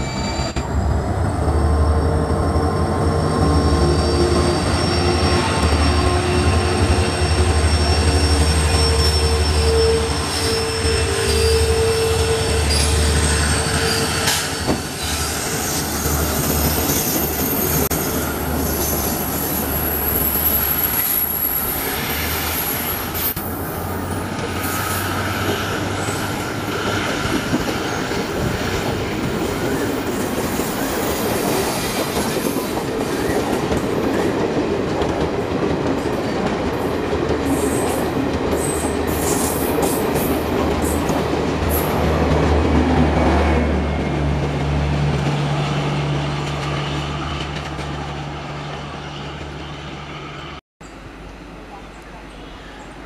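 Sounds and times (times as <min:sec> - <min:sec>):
high-pitched wheel squeal: 0:00.0 - 0:00.6, 0:01.6 - 0:28.3
train wheels rumbling on rails: 0:00.0 - 0:50.6.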